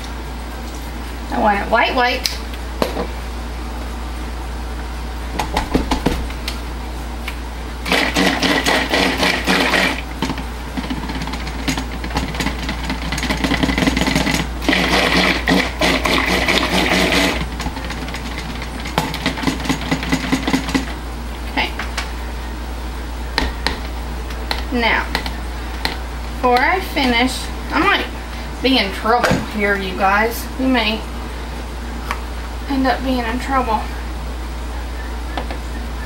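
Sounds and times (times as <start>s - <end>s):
stick blender motor whine: 7.8s - 21.0s.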